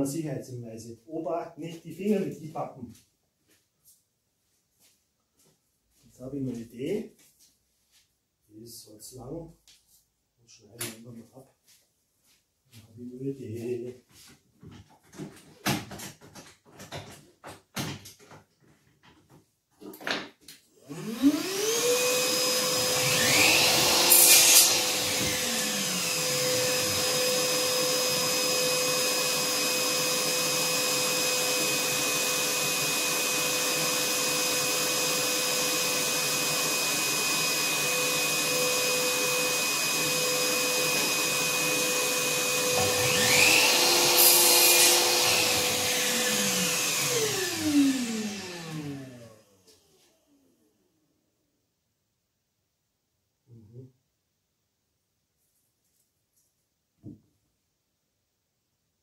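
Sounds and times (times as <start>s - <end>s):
vacuum cleaner motor whine: 20.8s - 50.6s.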